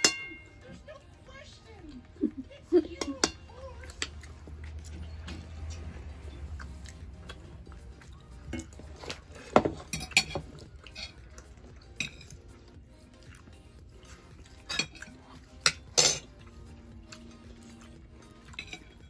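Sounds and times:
cutlery clinking on plates: 0:00.0 - 0:00.6, 0:02.9 - 0:04.2, 0:08.5 - 0:11.2, 0:11.9 - 0:12.5, 0:14.5 - 0:16.4, 0:18.4 - 0:19.0.

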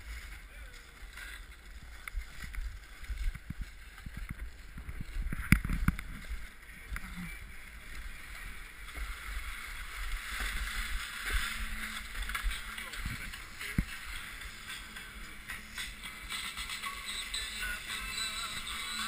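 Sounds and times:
snowboard scraping over snow: 0:00.0 - 0:15.2
wind buffeting camera: 0:01.0 - 0:14.7.

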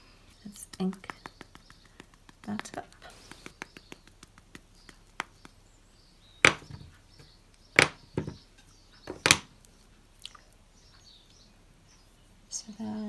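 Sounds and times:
plastic stamp block knocks: 0:06.4 - 0:06.8, 0:07.8 - 0:08.4, 0:09.1 - 0:09.5.

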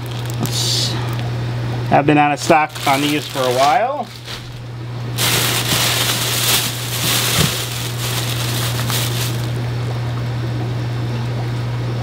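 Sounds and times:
plastic bags crinkling: 0:00.0 - 0:00.6, 0:02.4 - 0:09.7.

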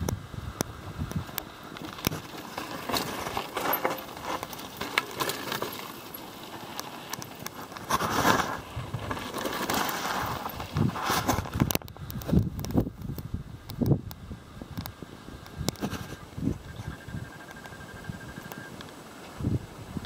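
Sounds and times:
bike rattling: 0:00.8 - 0:13.2
tyres crunching on gravel: 0:01.2 - 0:12.8
tyre scuffing on dirt: 0:01.8 - 0:11.4.

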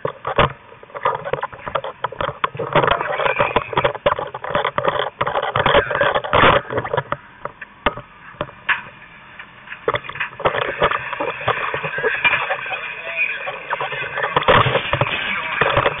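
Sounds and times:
gear knocking and clattering: 0:00.0 - 0:08.9, 0:13.5 - 0:16.0
voices: 0:01.0 - 0:07.6, 0:10.5 - 0:16.0
rushing noise: 0:08.1 - 0:16.0.

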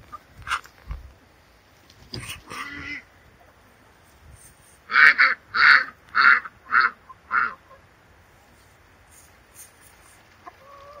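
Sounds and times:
duck quacking loudly: 0:02.2 - 0:03.1, 0:04.9 - 0:07.8.

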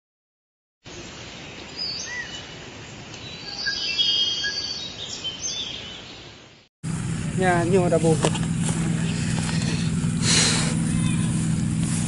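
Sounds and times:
outdoor background noise: 0:00.8 - 0:12.0
birds chirping and calling: 0:01.4 - 0:06.4, 0:08.2 - 0:11.6
bird trill: 0:01.8 - 0:02.5, 0:03.2 - 0:06.3.

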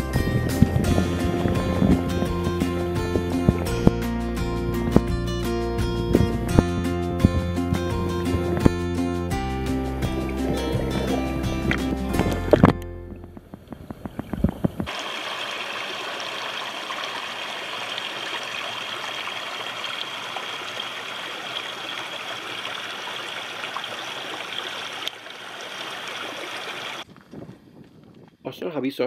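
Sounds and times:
low knocks: 0:05.9 - 0:09.0
muffled underwater stream: 0:09.9 - 0:27.0
stream trickling over rocks: 0:13.7 - 0:27.1.

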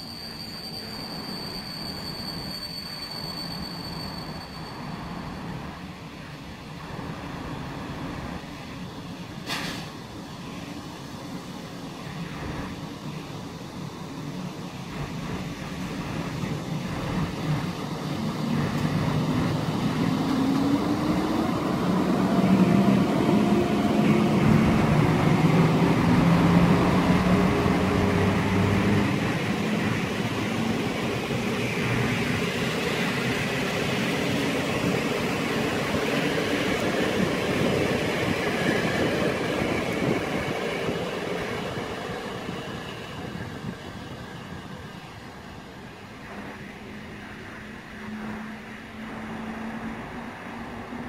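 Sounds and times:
train wheels clattering on rails: 0:09.4 - 0:10.1.

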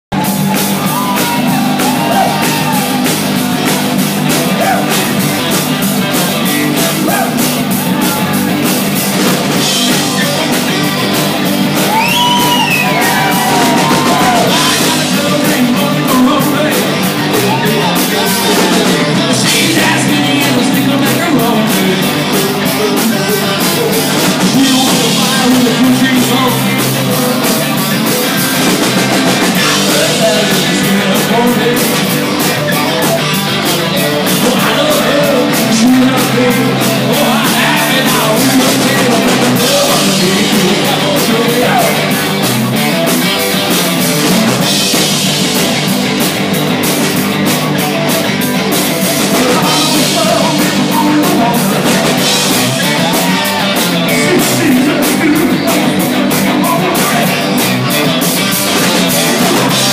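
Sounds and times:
drum kit beat: 0:00.1 - 0:59.9
electric guitars: 0:00.1 - 0:59.9
people singing and yelling: 0:00.1 - 0:59.9.

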